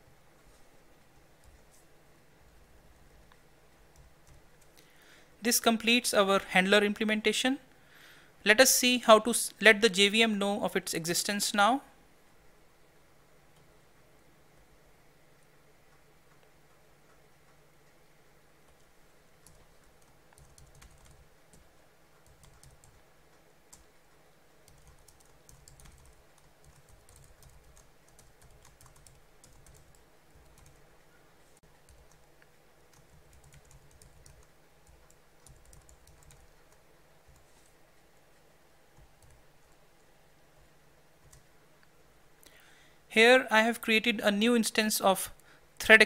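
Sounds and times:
low steady hum: 0.0 - 46.0
computer keyboard typing: 3.9 - 4.8, 18.7 - 23.9, 24.6 - 30.8, 31.7 - 37.5, 39.0 - 39.8, 41.2 - 41.5.

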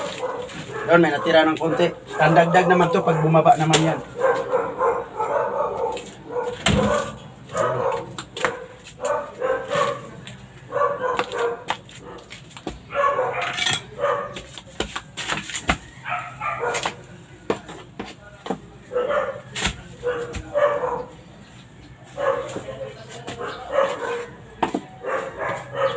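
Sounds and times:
dog barking and whimpering: 0.0 - 12.3, 12.9 - 14.4, 15.9 - 16.9, 18.9 - 21.2, 22.2 - 22.6, 23.4 - 24.4, 25.0 - 25.9.

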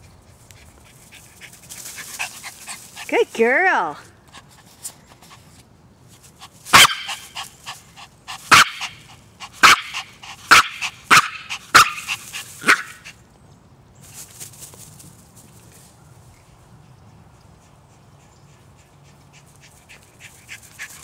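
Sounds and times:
dog barking: 6.8 - 7.2, 8.5 - 9.0, 9.6 - 13.0.

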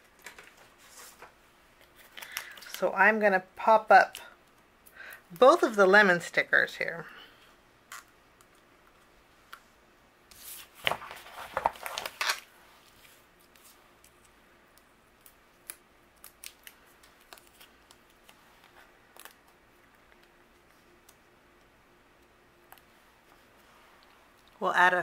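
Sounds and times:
sticker peeling rustles and snaps: 10.3 - 21.2.

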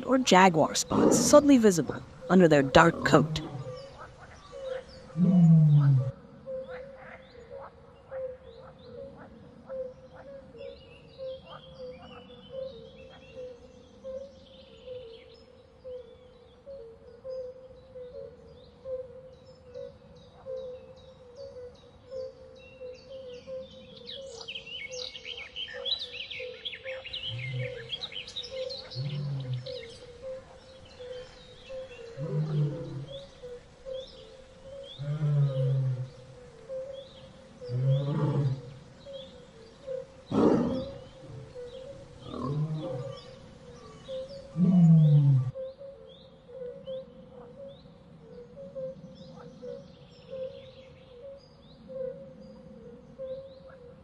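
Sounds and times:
big cat grunting calls: 0.0 - 6.2, 27.2 - 28.1, 28.8 - 34.0, 34.8 - 36.3, 37.6 - 38.9, 40.0 - 45.6
birds chirping: 0.0 - 9.4, 23.0 - 45.7.

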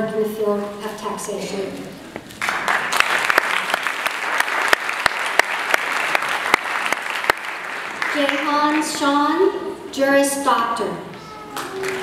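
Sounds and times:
audience applauding: 2.4 - 8.9, 11.5 - 12.0
sharp individual claps: 2.4 - 8.9.

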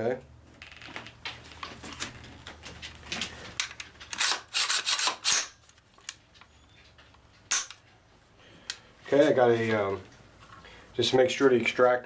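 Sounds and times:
rubbing and scraping handling noise: 8.9 - 10.7.

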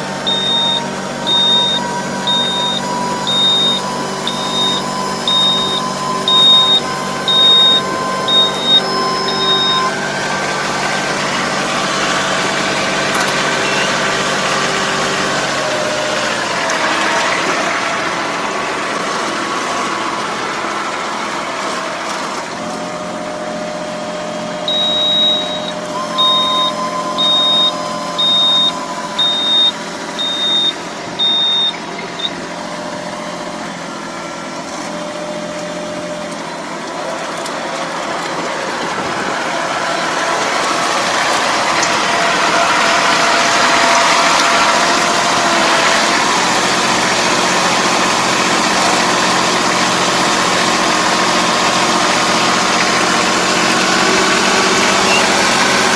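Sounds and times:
tractor engine running: 0.0 - 55.9
electronic warning beeper: 0.2 - 11.0, 24.4 - 32.4.

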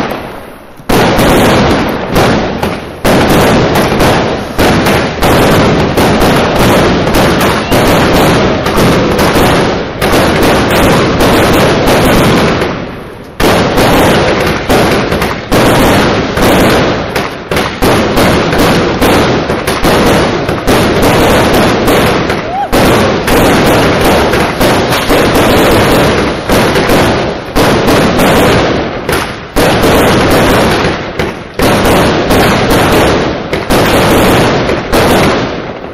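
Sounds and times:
fireworks bangs and crackles: 0.0 - 35.9.

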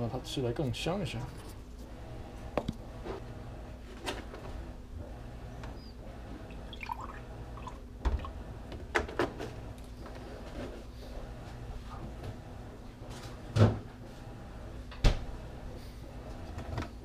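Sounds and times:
milk pouring into water: 6.5 - 7.8.

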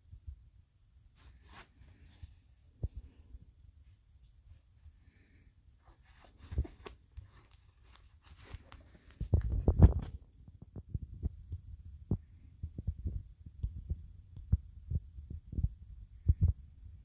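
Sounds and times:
handling thumps and rubbing: 5.8 - 10.1.

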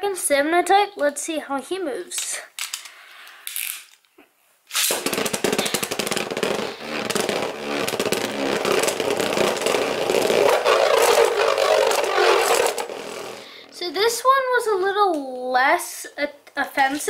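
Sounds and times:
spinning top whirring in stadium: 6.3 - 13.4.

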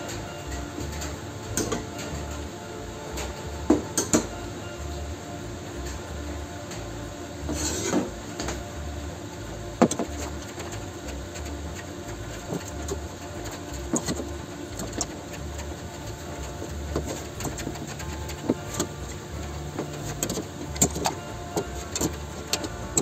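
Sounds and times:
steady low hum: 0.0 - 23.0
metal scraping on workbench: 7.5 - 8.1.

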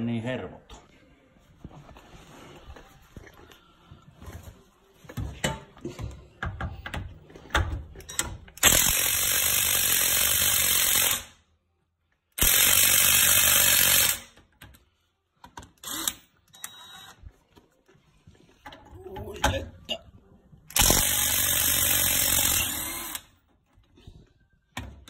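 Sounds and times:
cordless ratchet running: 12.4 - 14.3, 20.7 - 23.2.

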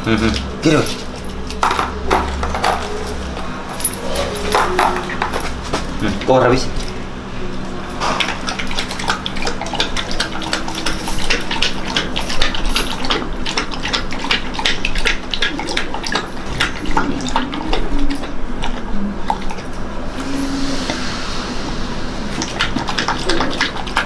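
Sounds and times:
dog lapping milk: 7.8 - 19.8, 22.3 - 24.0.

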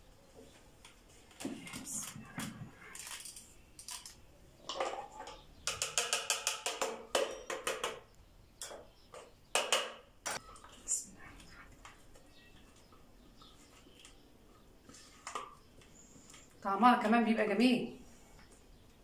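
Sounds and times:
plastic bowl clicking and knocking: 4.7 - 10.4.

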